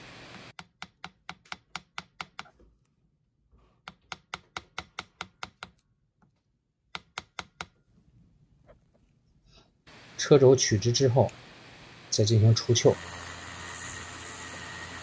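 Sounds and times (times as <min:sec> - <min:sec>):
hammer tapping metal rod: 0:00.6 - 0:02.6, 0:03.8 - 0:05.8, 0:06.9 - 0:07.8.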